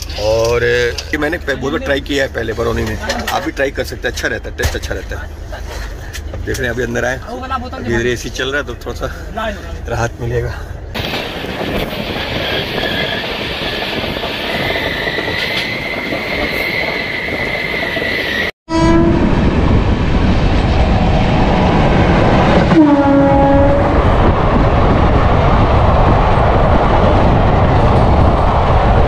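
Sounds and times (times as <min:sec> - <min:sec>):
passenger train running: 0:00.0 - 0:29.0
locomotive horn blasts: 0:18.7 - 0:19.3, 0:22.7 - 0:24.1.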